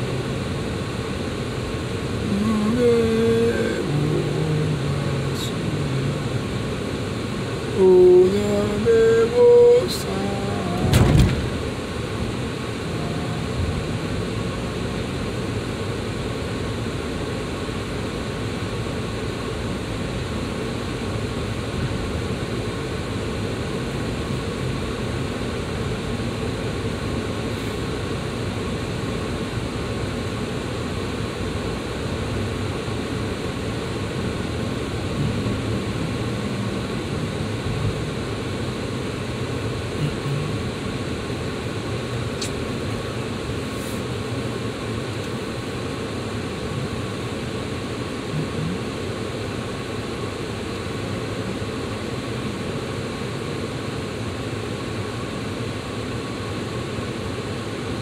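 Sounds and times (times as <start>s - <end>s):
car road and engine noise: 0.0s - 58.0s
thump: 10.9s - 11.5s.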